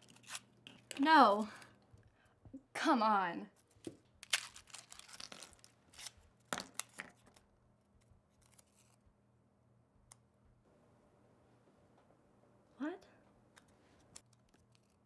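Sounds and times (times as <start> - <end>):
fortune cookie crunching: 3.6 - 9.0
paper rustling: 8.3 - 9.0, 14.0 - 15.0.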